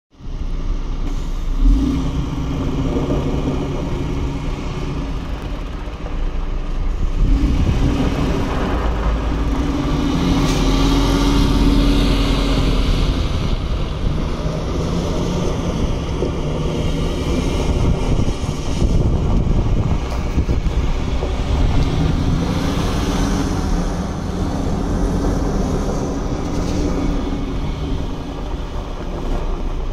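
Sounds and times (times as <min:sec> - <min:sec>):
truck diesel engine: 0:00.1 - 0:29.9.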